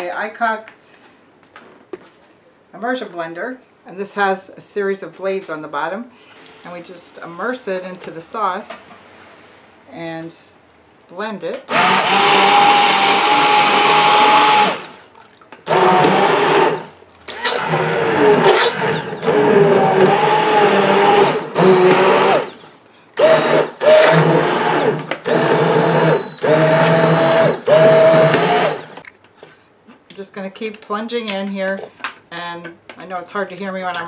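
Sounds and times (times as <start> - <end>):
immersion blender whining: 11.7 - 15.1, 15.7 - 29.0.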